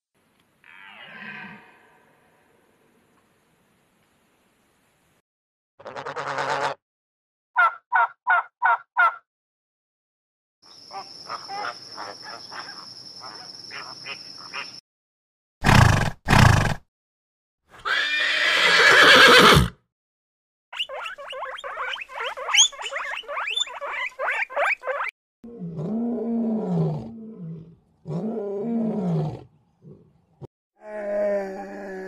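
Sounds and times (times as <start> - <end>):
loud animal call: 0.6 - 2.4
guinea pigs squeaking: 20.8 - 25.1
lion roaring: 25.5 - 30.1.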